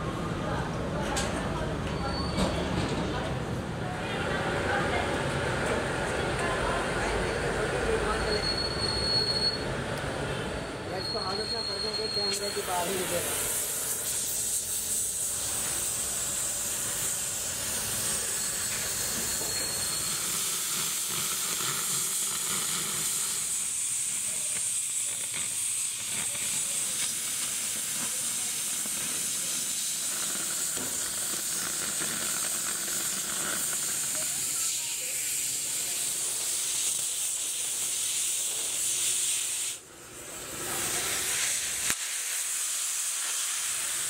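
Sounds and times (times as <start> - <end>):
cutting torch hissing: 4.2 - 44.0.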